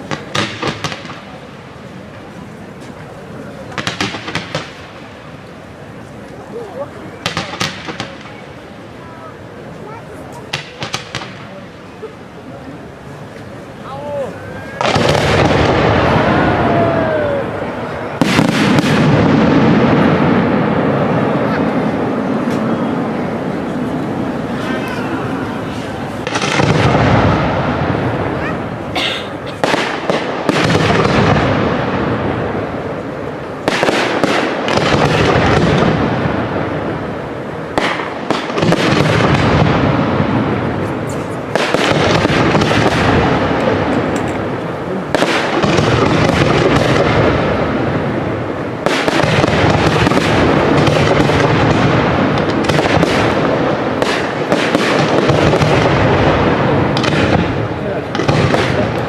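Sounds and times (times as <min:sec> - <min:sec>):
crackling rolling echo: 0:00.0 - 0:59.0.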